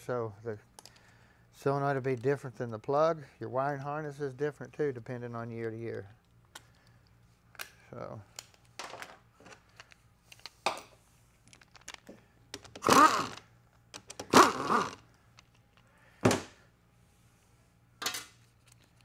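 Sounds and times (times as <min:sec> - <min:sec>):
power ratchet whining: 0:12.6 - 0:15.0.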